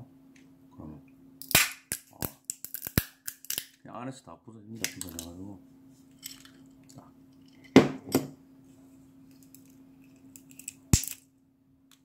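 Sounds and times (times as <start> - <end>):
walnut shell cracking: 1.4 - 3.8, 9.4 - 11.2.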